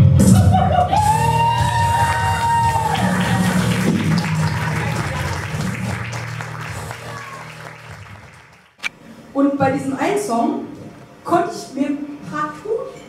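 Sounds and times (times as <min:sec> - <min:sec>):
audience applause: 0:00.6 - 0:08.8.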